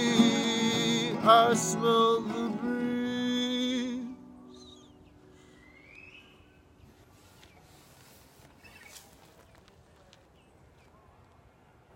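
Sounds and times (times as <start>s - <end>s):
bird chirps: 4.3s - 7.8s, 8.6s - 9.2s.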